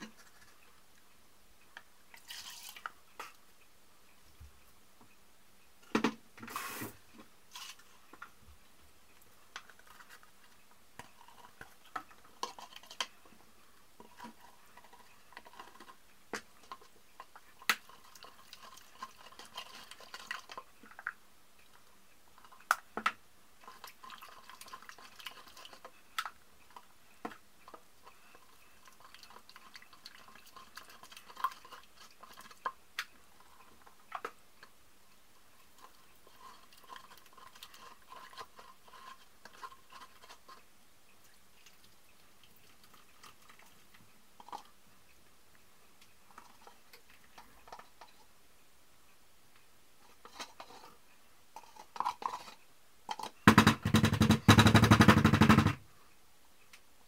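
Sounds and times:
stirrer scraping inside plastic cup: 0.0 - 0.7, 2.2 - 3.3, 9.6 - 13.2, 14.0 - 16.0, 16.6 - 20.7, 23.6 - 26.0, 26.7 - 32.8, 35.8 - 40.7, 50.1 - 51.0, 51.6 - 53.4.

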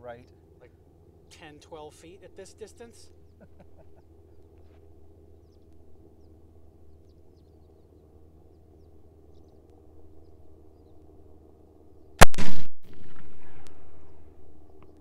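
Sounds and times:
steady low hum: 0.0 - 15.0
bird chirps: 5.3 - 11.1.

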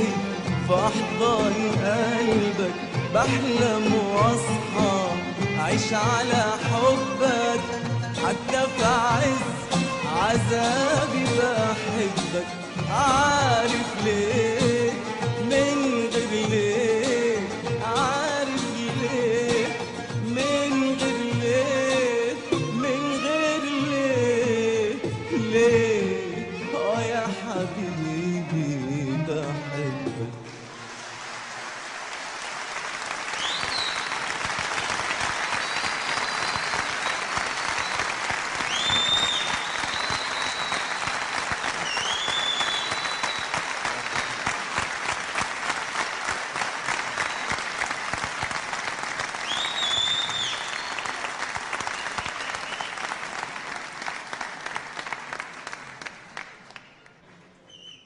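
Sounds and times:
audience applauding: 30.6 - 57.2
high whistles: 33.3 - 34.2, 35.5 - 43.6, 49.4 - 51.2, 51.9 - 53.1, 57.6 - 58.0.

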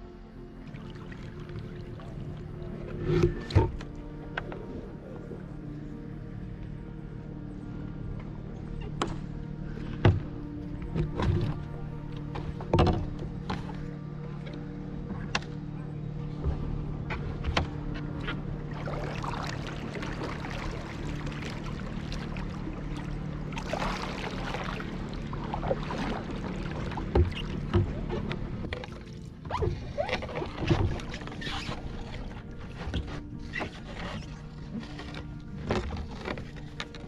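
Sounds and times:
paddle splashing in water: 0.6 - 5.0, 16.5 - 37.0.

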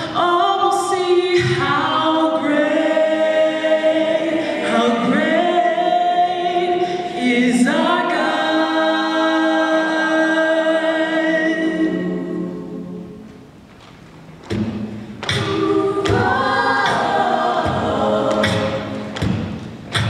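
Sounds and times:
a cappella choir singing: 0.0 - 13.3, 15.2 - 20.0
vocal percussion beats: 14.4 - 20.0.

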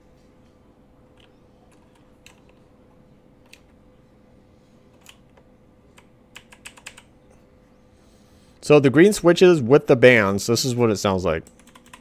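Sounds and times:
mechanical keyboard clicks: 6.0 - 7.1, 11.5 - 12.0.

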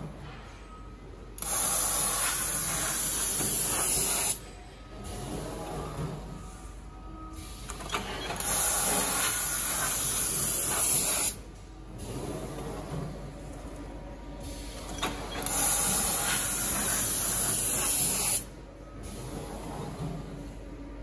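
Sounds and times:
machine cutting steel sheet hiss: 1.4 - 4.4, 7.4 - 11.4, 15.4 - 19.4.

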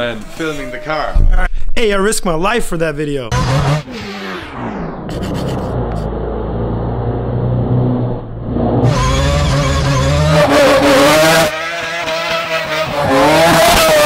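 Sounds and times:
car engine revving hard: 3.3 - 14.0.

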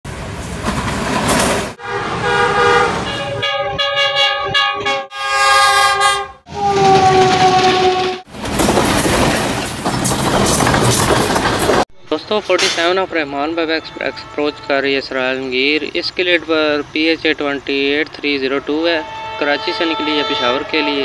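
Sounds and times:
rumble of passing train: 0.1 - 5.0, 6.5 - 21.0
diesel locomotive horn blasts: 1.8 - 8.3, 13.6 - 15.3, 18.6 - 21.0.

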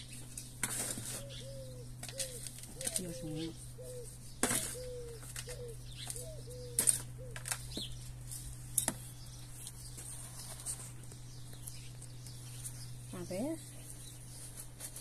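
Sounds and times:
dove cooing: 1.0 - 7.9.

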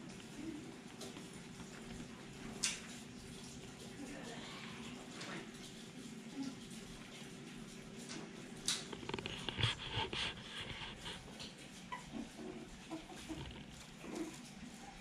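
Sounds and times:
puppies squeaking and yipping: 11.7 - 14.3.

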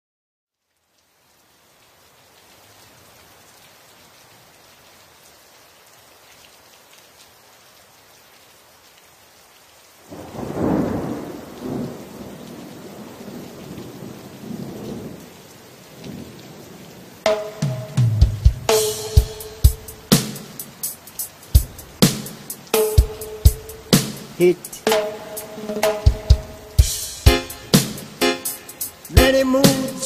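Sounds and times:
steady rain hissing: 0.5 - 30.0
thunder clap rumbling: 10.1 - 15.2, 21.6 - 30.0.

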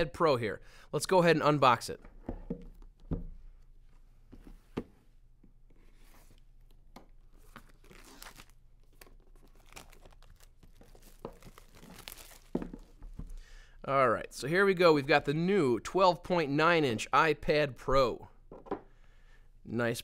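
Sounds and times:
plastic wrap crinkling and tearing: 7.3 - 13.0.

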